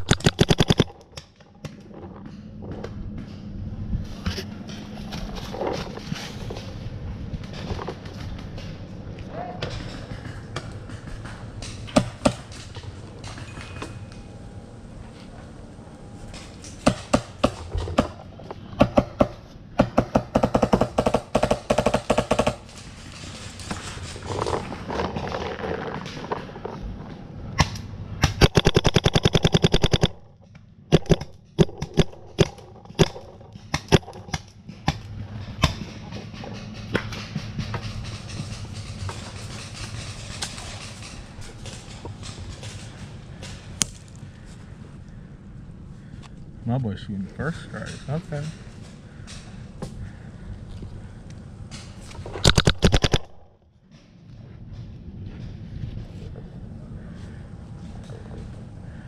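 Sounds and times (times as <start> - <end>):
paintball markers firing: 0.0 - 1.2, 27.6 - 30.3, 30.9 - 34.5, 52.4 - 53.4.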